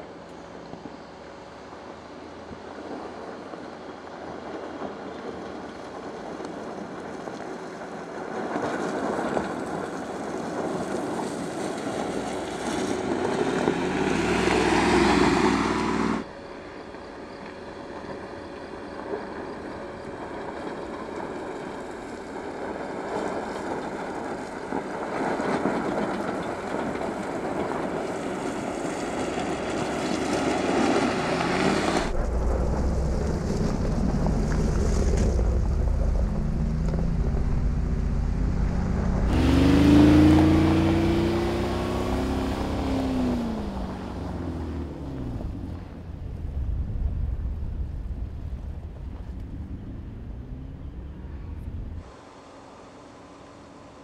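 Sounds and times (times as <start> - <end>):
car engine running: 30.2 - 52.1
deep rumble: 31.0 - 52.1.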